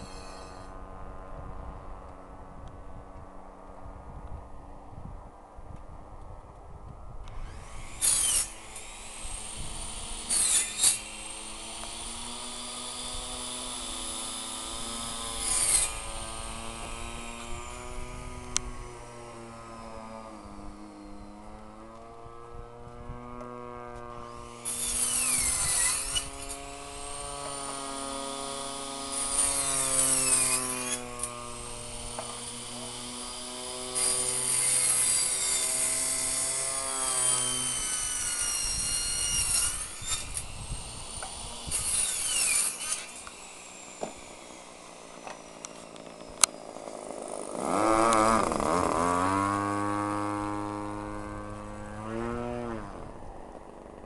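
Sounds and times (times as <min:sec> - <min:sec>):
model plane engine in flight: 0:00.0 - 0:54.0.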